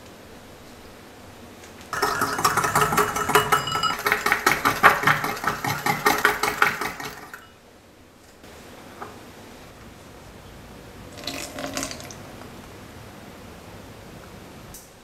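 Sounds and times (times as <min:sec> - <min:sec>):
whisk clinking in glass bowl: 0:02.0 - 0:07.6.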